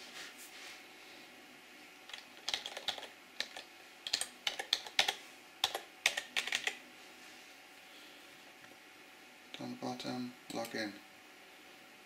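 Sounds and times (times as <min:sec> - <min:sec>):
keyboard typing clicks: 0:02.1 - 0:06.8.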